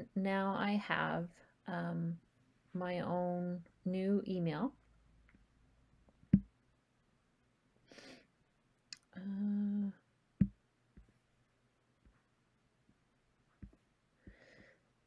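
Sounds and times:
woman humming: 9.0 - 10.0
soft breath: 14.2 - 15.0.

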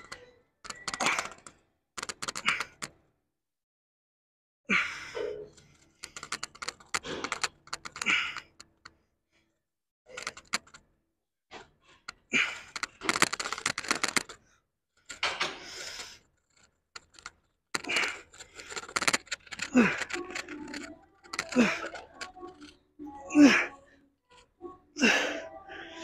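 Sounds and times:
rapid clicking and rattling: 0.0 - 2.9, 5.9 - 8.9, 10.1 - 10.8, 11.6 - 14.4, 15.0 - 22.8.

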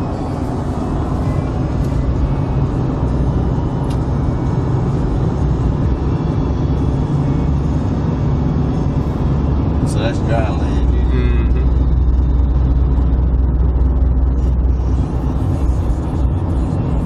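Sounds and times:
car driving interior drone: 0.0 - 17.0.

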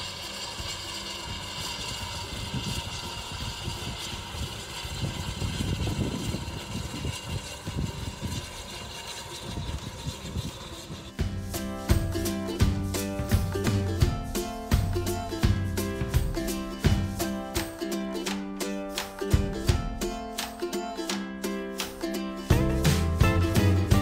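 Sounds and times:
train rumble: 0.0 - 17.9
steam locomotive chuffing: 0.0 - 18.0.

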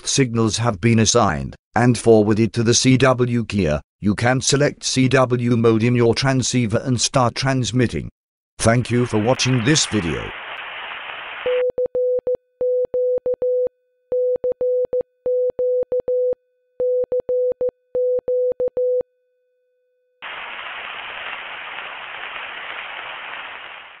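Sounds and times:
static hiss: 9.1 - 11.5, 20.2 - 24.0
morse code sidetone beeps: 11.5 - 19.0.

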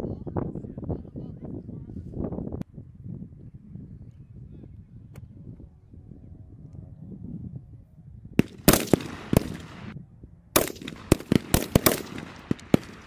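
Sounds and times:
rifle shots with echo: 8.4 - 13.0.

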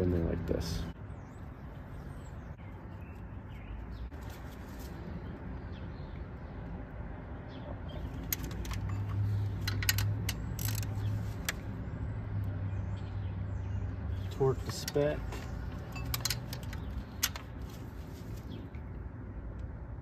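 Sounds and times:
hand tools clinking on metal: 14.3 - 17.4.

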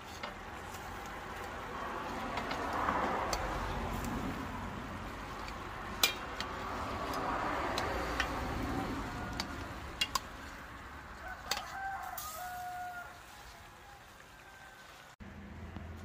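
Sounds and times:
utensil clinking on steel pot: 5.3 - 6.6.

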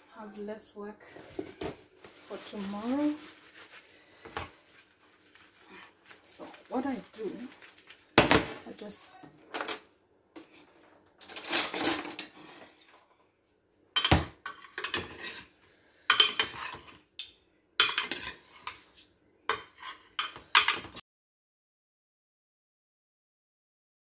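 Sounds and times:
utensil scraping a metal tray: 14.5 - 15.5.

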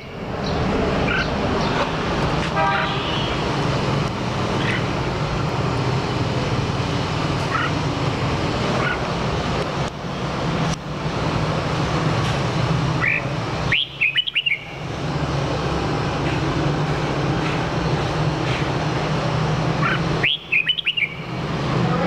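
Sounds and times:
bird singing whistled notes: 13.0 - 14.8, 19.8 - 21.3.

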